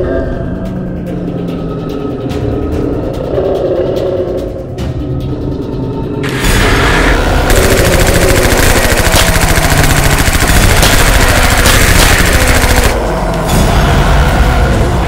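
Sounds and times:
rapid automatic gunfire: 7.2 - 13.0.

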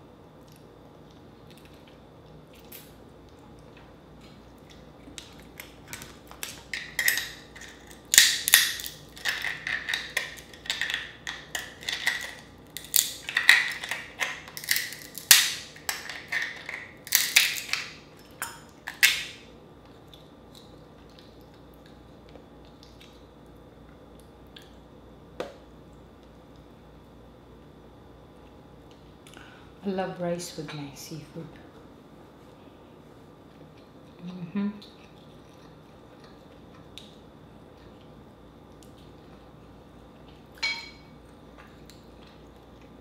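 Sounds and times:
crab shell crackling: 5.1 - 18.0.

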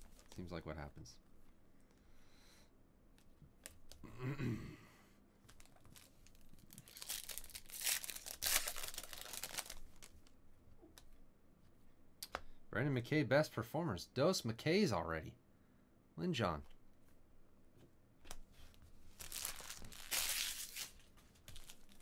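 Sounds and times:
foil wrapper tearing and crinkling: 5.9 - 10.1, 19.1 - 22.0.

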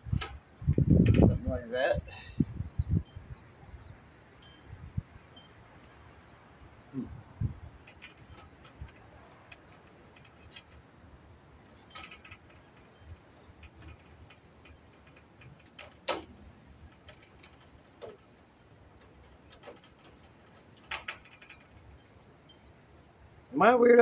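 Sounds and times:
small birds chirping: 0.0 - 24.0
clicks and knocks on sheet metal: 7.7 - 10.9, 11.7 - 22.0.

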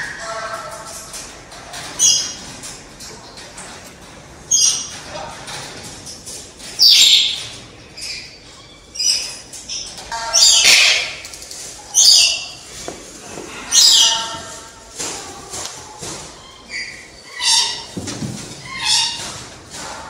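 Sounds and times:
hornbill calling: 10.1 - 11.3, 13.7 - 14.6.

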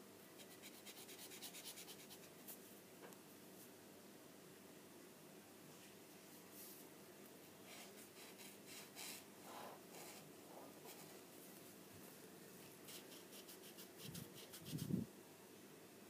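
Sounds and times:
marker scratching on paper: 7.7 - 10.2, 12.9 - 15.0.

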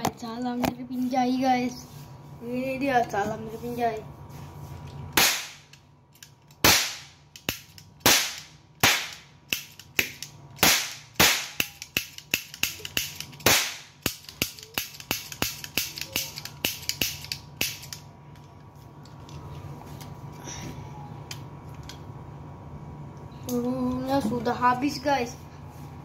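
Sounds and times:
cap pistol cracks: 5.2 - 18.1.

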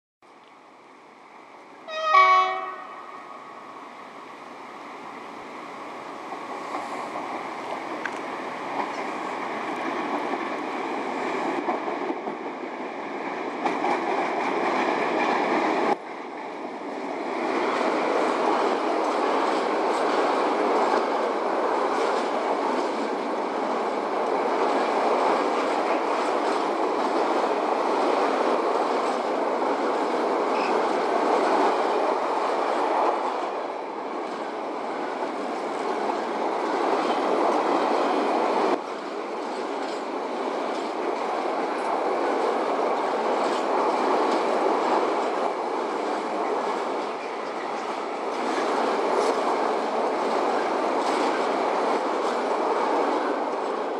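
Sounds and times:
train wheels on rails: 1.5 - 53.9.

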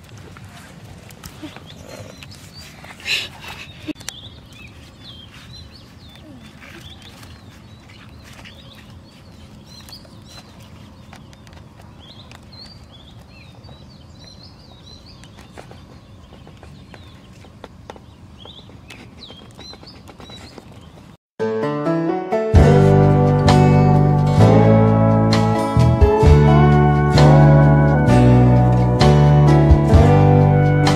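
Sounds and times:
small birds chirping: 1.1 - 21.2.

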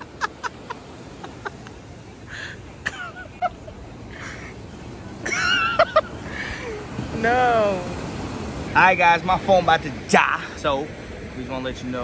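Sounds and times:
people laughing: 0.0 - 7.0
breaking surf: 0.0 - 12.0.

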